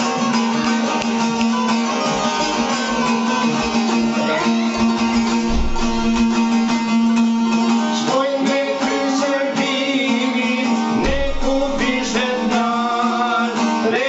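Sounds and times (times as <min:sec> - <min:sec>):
plucked lutes playing a tune: 0:00.0 - 0:14.0.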